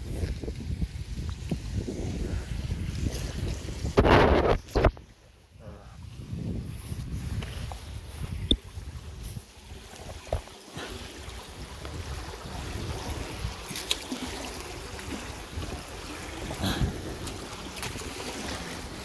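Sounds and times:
wind noise: 0.0 - 19.0
water trickling: 8.0 - 19.0.

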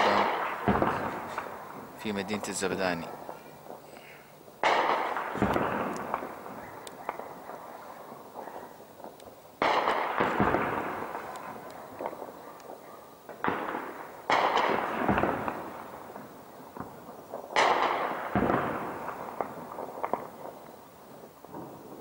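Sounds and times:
single gunshots cracking: 0.0 - 3.4, 4.6 - 7.6, 9.6 - 16.0, 17.5 - 20.6
heavy blasts with rolling echo: 0.0 - 3.9, 4.5 - 12.4.

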